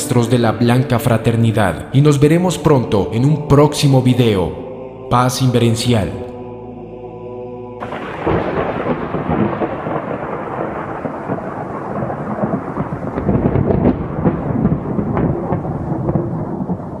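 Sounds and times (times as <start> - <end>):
rain: 7.8 - 17.0
thunder crackles: 7.8 - 17.0
thunder rumbling: 7.8 - 17.0.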